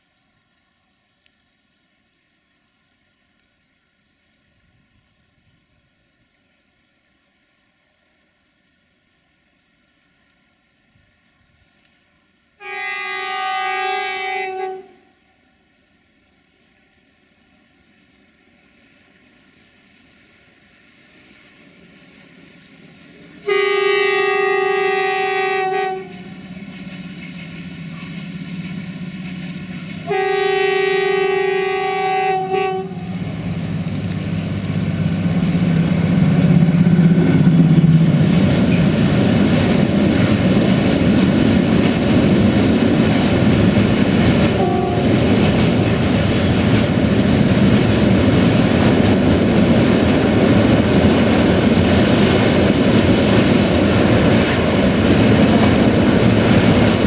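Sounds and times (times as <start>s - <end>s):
locomotive horn blasts: 12.6s - 15.3s, 23.4s - 26.6s, 30.0s - 33.2s, 44.6s - 45.2s
train wheels rumbling on rail: 15.8s - 57.0s.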